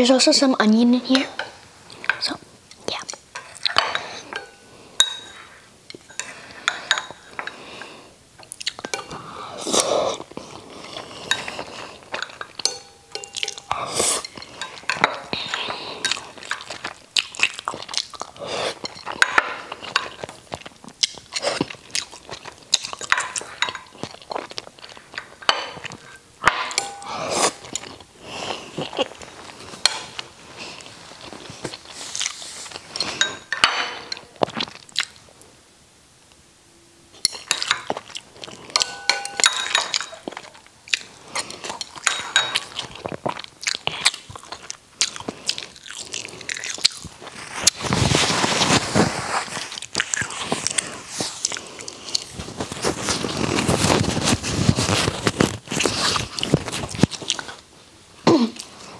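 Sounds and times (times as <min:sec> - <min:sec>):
chewing and mouth sounds: 0:08.4 - 0:26.2, 0:26.8 - 0:33.4, 0:34.2 - 0:35.2, 0:39.6 - 0:48.1, 0:49.5 - 0:57.6
chopsticks tapping ceramic bowl: 0:12.2 - 0:15.3, 0:26.4 - 0:27.2, 0:38.7 - 0:40.1.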